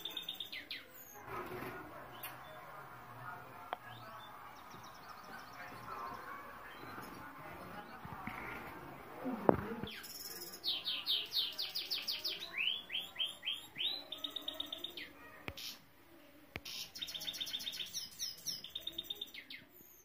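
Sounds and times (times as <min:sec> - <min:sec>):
canary singing trills: 0:00.0 - 0:01.2, 0:09.8 - 0:15.9, 0:16.6 - 0:20.0.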